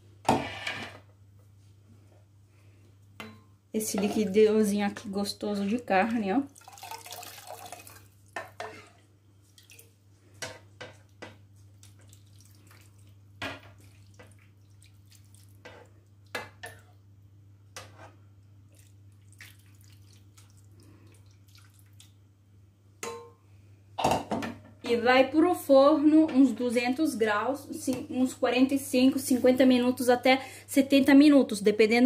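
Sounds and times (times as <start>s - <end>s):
liquid splashing and dripping: 6.6s - 8.4s, 9.5s - 10.0s, 11.7s - 15.6s, 18.7s - 22.2s.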